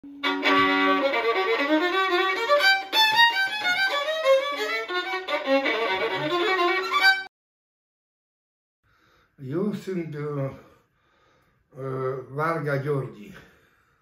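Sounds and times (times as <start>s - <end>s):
violin playing fast tune: 0.0s - 7.3s.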